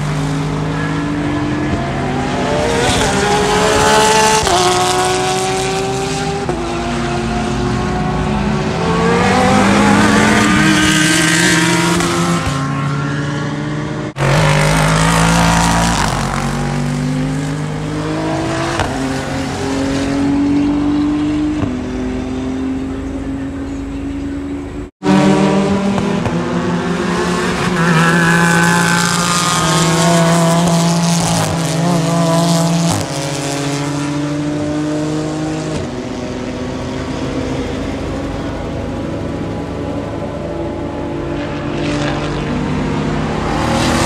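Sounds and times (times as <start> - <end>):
racing car engines: 0.0 - 44.0.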